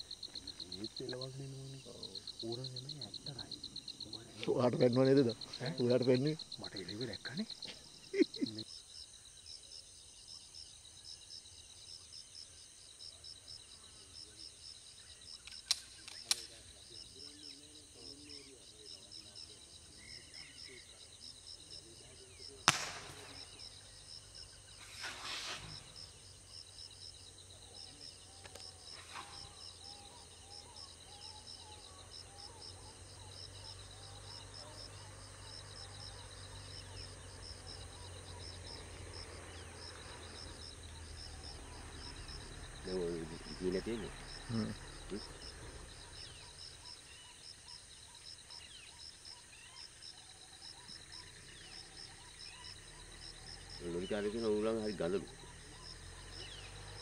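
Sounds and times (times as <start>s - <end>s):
insects chirring: 0.0s - 57.0s
sharp clicks: 15.4s - 16.5s, 22.6s - 23.5s
loud sharp crack: 22.6s - 23.6s
brief rustle: 24.8s - 25.9s.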